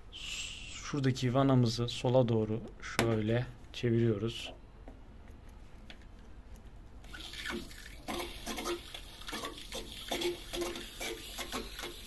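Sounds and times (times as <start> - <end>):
water gurgling: 7.1 - 12.0
water hissing through valve: 7.1 - 12.0.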